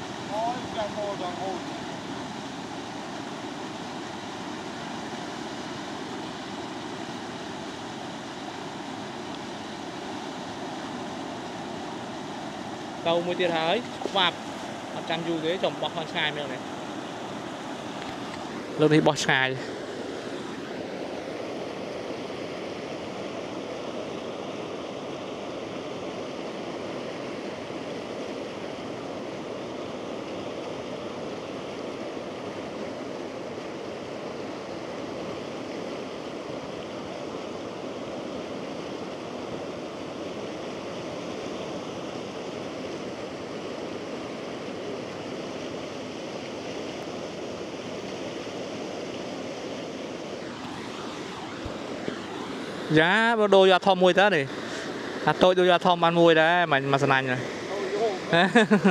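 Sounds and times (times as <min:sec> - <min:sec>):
floodwater rushing: 0:00.0 - 0:22.6, 0:44.4 - 0:58.9.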